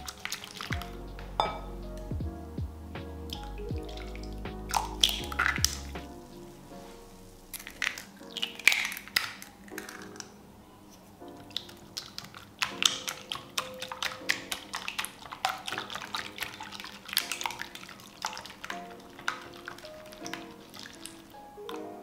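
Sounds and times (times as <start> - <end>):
soft background music: 0.0 - 22.0
whisk beating batter in bowl: 12.0 - 21.2.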